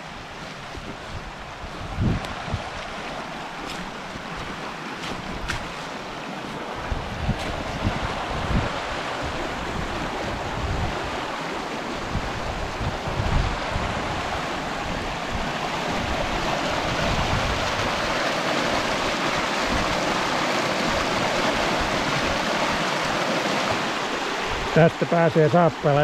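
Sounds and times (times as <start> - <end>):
wind buffeting microphone: 0.1 - 24.8
brook rushing over stones: 2.0 - 10.1.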